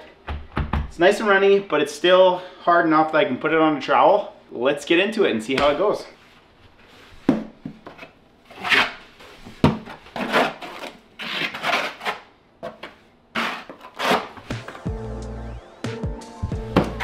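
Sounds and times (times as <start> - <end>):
trowel scraping mortar on wood: 8.5 - 9.0, 10.1 - 14.6.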